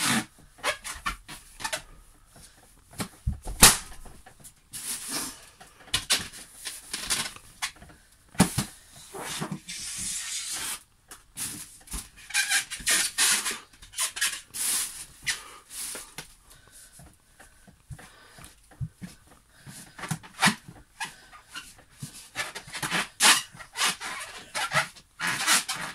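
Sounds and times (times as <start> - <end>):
balloons squeaking and rubbing: 0.0 - 2.2, 2.9 - 7.8, 8.4 - 16.1, 19.8 - 25.9
balloon sharp crack: 3.0 - 5.3, 8.4 - 10.8.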